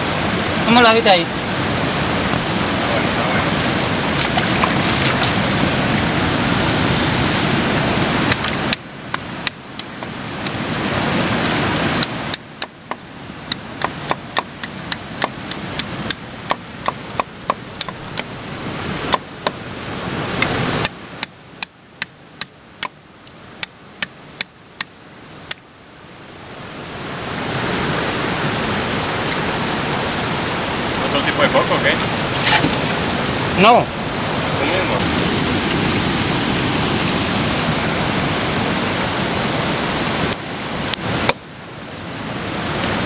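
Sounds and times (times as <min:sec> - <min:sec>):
surf washing: 0:00.0 - 0:43.0
machete chopping coconut: 0:12.0 - 0:18.3, 0:19.1 - 0:19.6.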